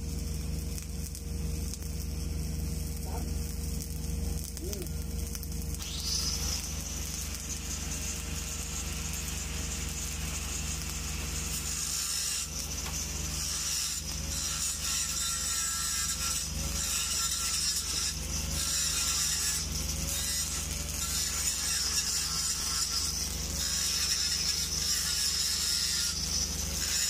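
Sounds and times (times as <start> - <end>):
low hum: 0.0 - 17.4
welding arc crackling: 0.0 - 27.0.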